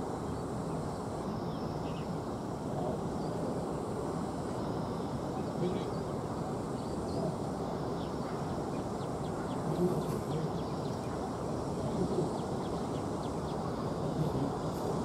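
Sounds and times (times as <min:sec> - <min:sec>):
birds chirping: 0:04.6 - 0:15.0.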